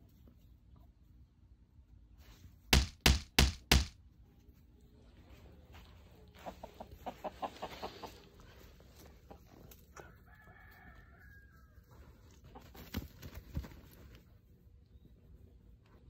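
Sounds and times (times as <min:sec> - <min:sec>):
sharp knocks: 0:02.7 - 0:04.0
chickens clucking: 0:06.2 - 0:09.8
rooster crowing faintly: 0:09.9 - 0:12.3.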